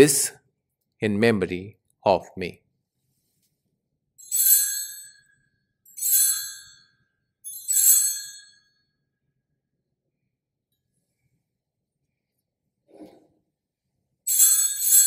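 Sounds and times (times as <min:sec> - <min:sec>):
altar bell ringing: 0:04.2 - 0:08.9, 0:14.3 - 0:15.0.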